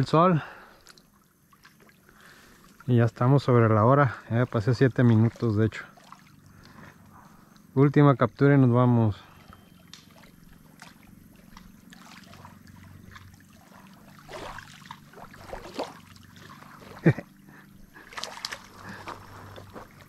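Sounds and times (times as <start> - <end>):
lake water lapping: 0.0 - 7.8, 8.9 - 20.0
fishing rod and line rustling: 9.4 - 20.0.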